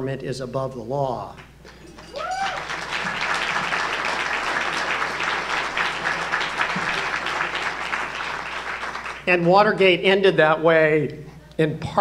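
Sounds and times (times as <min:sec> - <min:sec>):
audience applauding: 0:01.7 - 0:09.3.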